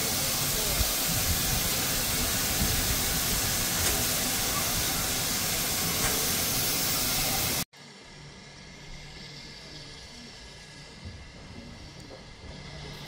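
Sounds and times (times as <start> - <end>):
steam locomotive hissing: 0.0 - 7.7, 8.4 - 13.0.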